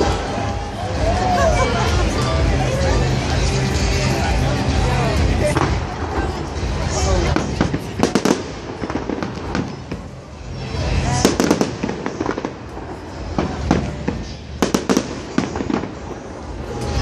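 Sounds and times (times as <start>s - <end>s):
fireworks bangs and crackles: 0.0s - 17.0s
steady low rumble: 0.0s - 17.0s.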